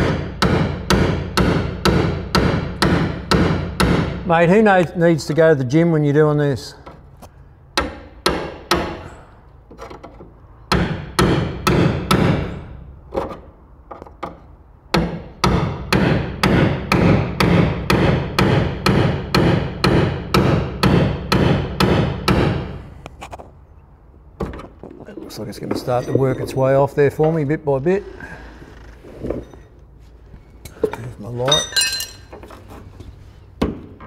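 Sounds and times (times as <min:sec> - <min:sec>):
hammer striking chisel on steel: 0:15.0 - 0:22.7.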